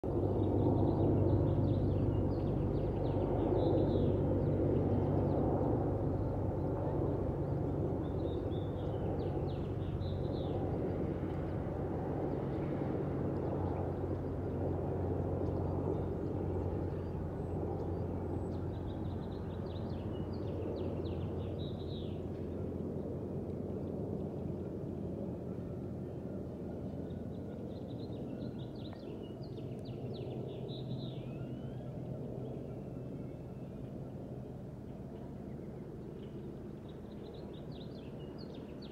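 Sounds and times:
jet engines rumbling overhead: 0.0s - 38.9s
small birds chirping: 26.9s - 34.3s.

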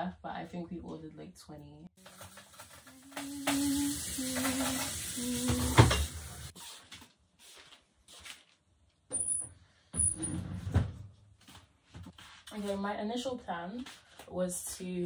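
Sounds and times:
food sizzling in a pan: 2.0s - 6.6s
kitchen handling sounds: 2.0s - 6.6s.

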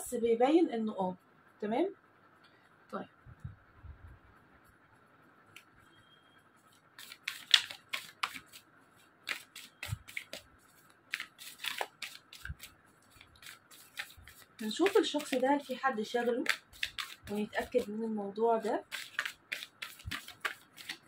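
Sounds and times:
cards being shuffled: 7.0s - 18.0s, 18.6s - 21.0s.

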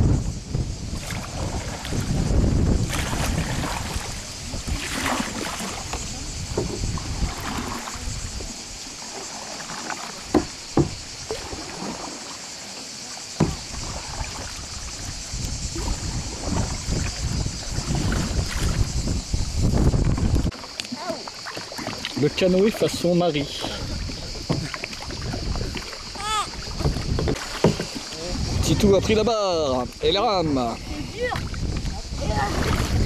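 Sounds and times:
wind rumble on microphone: 0.0s - 8.9s, 13.4s - 20.6s, 22.0s - 33.0s
hiss of moving water: 0.0s - 26.8s
canoe paddles splashing: 0.0s - 33.0s
sharp knocks: 10.3s - 11.0s.

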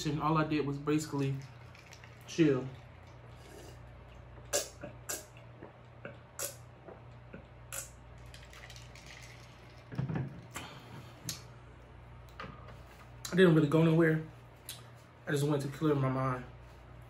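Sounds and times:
person gulping water: 1.4s - 10.8s.

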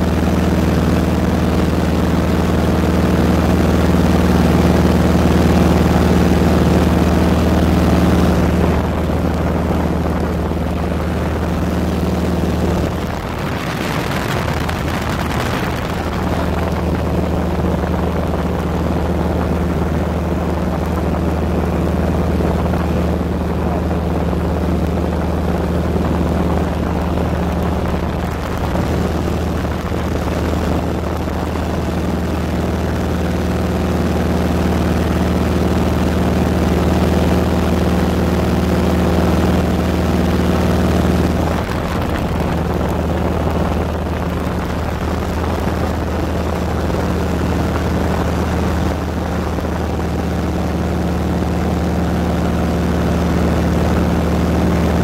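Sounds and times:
propeller aircraft engine drone: 0.0s - 55.0s.

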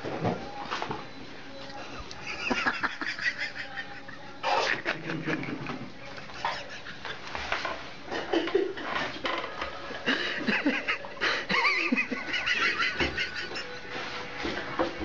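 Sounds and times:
people laughing: 2.1s - 7.4s, 8.1s - 9.1s, 10.0s - 14.1s.

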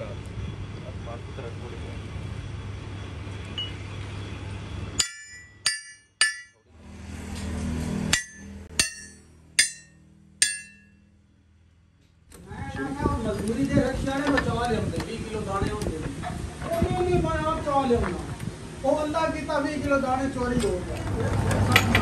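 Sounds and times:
hammer clanging on steel pipe: 5.0s - 6.6s, 8.1s - 11.0s.

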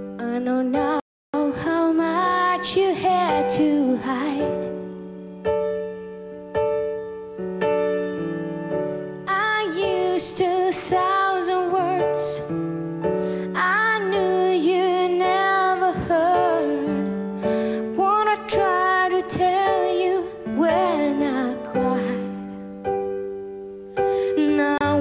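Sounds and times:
woman singing with vibrato: 0.2s - 4.7s, 9.3s - 12.5s, 13.5s - 17.2s, 17.9s - 22.4s, 24.4s - 25.0s.

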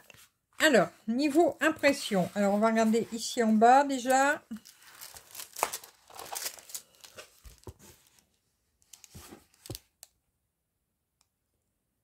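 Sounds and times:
plastic film crinkling: 2.4s - 10.0s.

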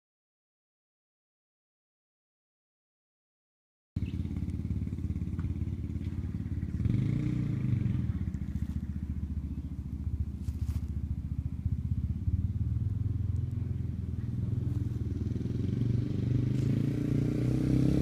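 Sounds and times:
small motorbike engine: 4.0s - 18.0s.

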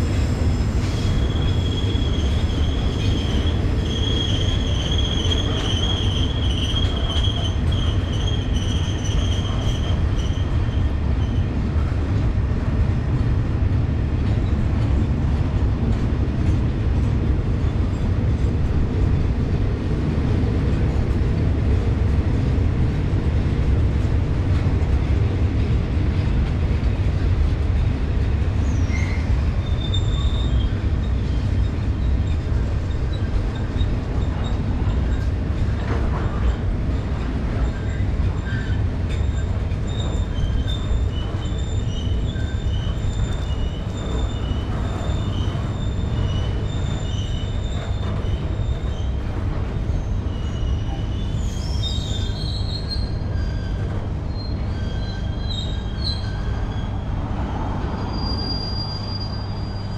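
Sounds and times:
train wheel squeal: 0.0s - 12.0s, 14.2s - 15.6s, 27.7s - 59.9s
freight train rumbling: 0.0s - 59.9s.

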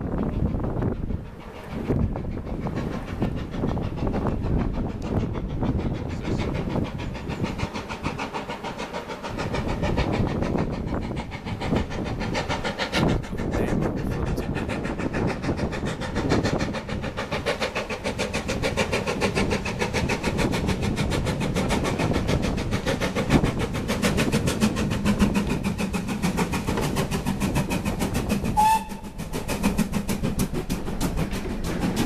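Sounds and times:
steam locomotive chugging: 0.0s - 32.0s
train whistle toot: 28.6s - 29.2s.

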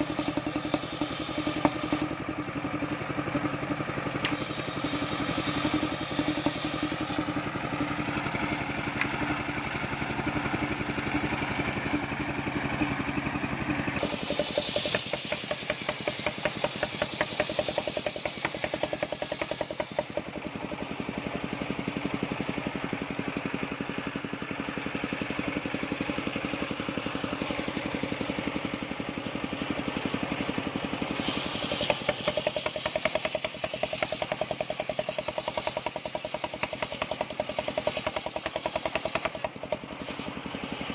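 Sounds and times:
engine knocking steadily: 0.0s - 40.9s
circular saw ripping a log: 4.2s - 7.3s.

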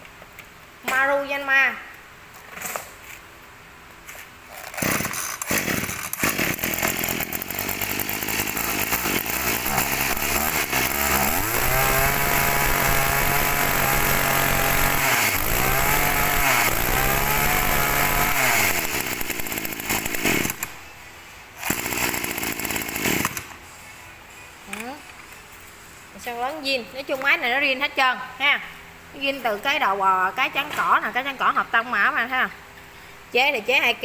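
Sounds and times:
brush cutter engine revving: 4.5s - 20.7s, 21.6s - 23.5s.

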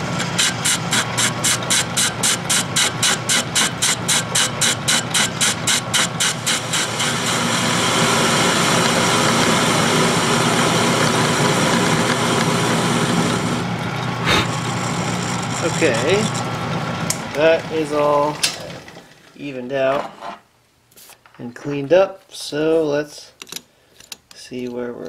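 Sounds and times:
metal lathe cutting steel: 0.0s - 18.4s.

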